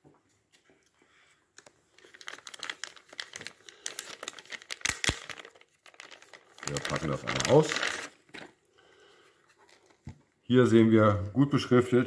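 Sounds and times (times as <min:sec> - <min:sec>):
plastic bag crinkling: 0:01.6 - 0:08.6.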